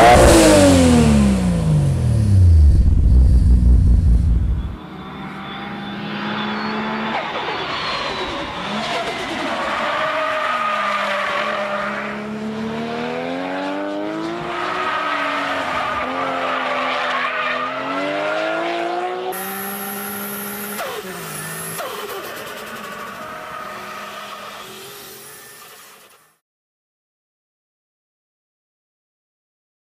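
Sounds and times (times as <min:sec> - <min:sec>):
car engine accelerating: 0:00.0 - 0:25.7
engine heard from inside car cabin: 0:01.2 - 0:04.8.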